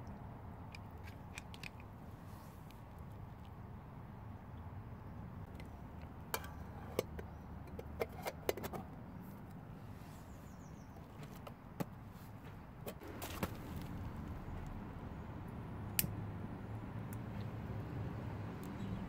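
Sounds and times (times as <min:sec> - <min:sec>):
low background rumble: 0:12.0 - 0:19.0.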